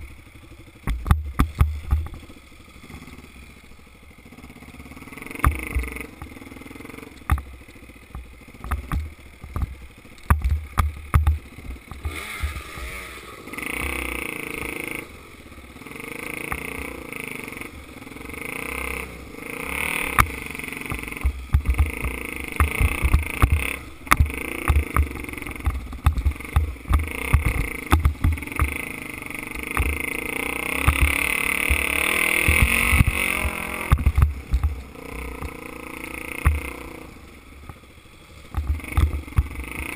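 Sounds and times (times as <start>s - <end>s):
bike knocking and rattling: 0.0s - 3.3s, 5.3s - 6.6s, 7.2s - 12.9s, 19.8s - 37.0s, 38.5s - 39.9s
dirt bike engine: 0.0s - 39.9s.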